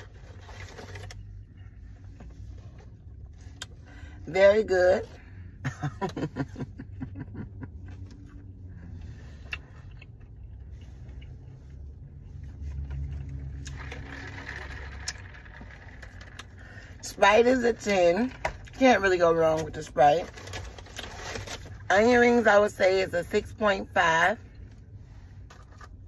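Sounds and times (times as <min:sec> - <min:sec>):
car interior rumble: 0:00.0 - 0:26.0
person chewing with crunches: 0:07.8 - 0:16.8.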